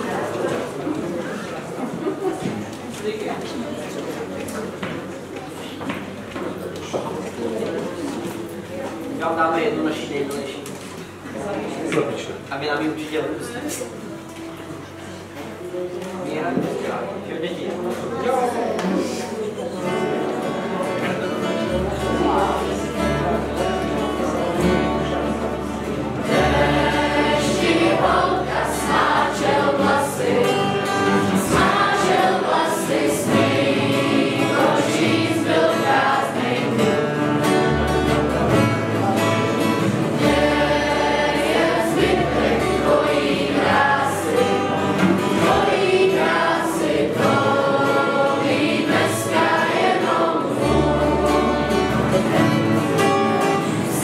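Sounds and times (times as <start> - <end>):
acoustic guitars: 0.0 - 54.0
group singing in chorus: 25.8 - 54.0
double bass: 47.1 - 54.0.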